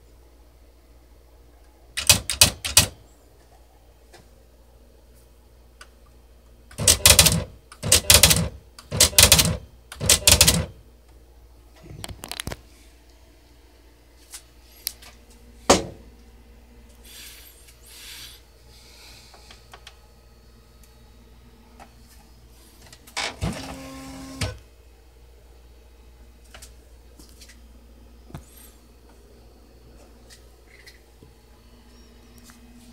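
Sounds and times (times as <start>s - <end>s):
typewriter mechanism noises: 2.0s - 3.0s, 6.7s - 10.7s
motor whir with stepped tones: 23.4s - 24.6s.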